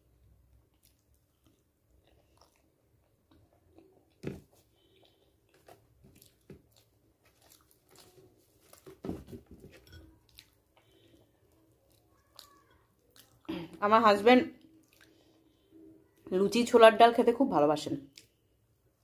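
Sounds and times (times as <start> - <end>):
faint chewing: 0.5 - 13.8, 14.5 - 16.3.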